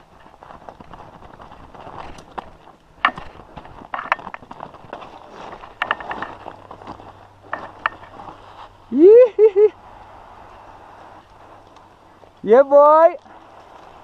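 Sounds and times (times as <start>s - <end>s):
bike clattering on rocks: 0.0s - 8.5s
bike tyres crunching over stones: 0.0s - 9.0s, 9.8s - 14.0s.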